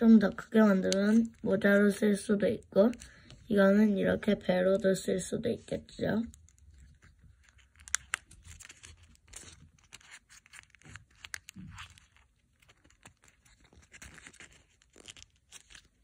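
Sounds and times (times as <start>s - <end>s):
paper rustling and crinkling: 6.2s - 16.0s.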